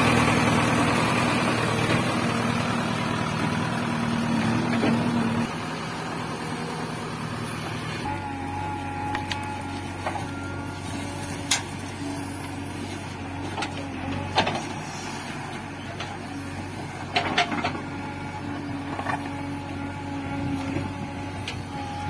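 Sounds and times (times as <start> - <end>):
diesel engine running: 0.0 - 22.0
humming tone: 8.0 - 12.4.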